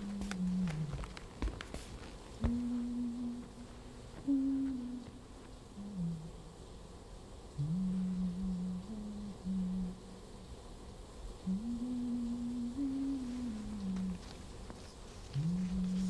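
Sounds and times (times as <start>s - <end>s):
man humming a low tune: 0.0s - 1.2s, 2.4s - 6.6s, 7.6s - 10.2s, 11.4s - 14.5s, 15.3s - 16.0s.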